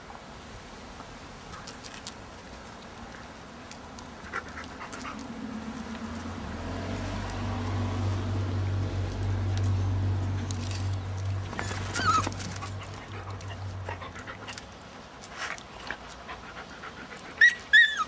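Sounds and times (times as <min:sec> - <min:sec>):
dog panting: 0:11.7 - 0:17.8.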